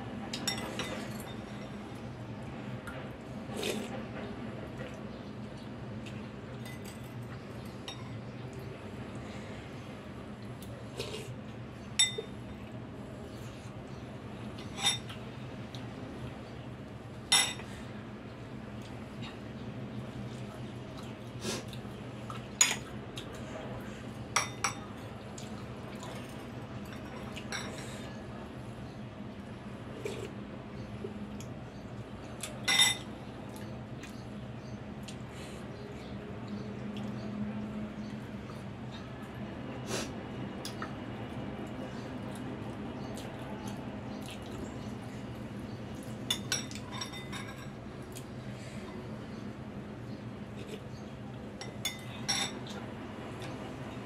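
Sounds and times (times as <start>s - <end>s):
cutlery clinking against ceramic bowl: 0.4s - 1.8s, 12.0s - 12.3s, 14.6s - 15.2s, 17.3s - 17.7s, 24.4s - 24.8s, 32.6s - 33.1s, 46.3s - 47.8s, 51.6s - 52.8s.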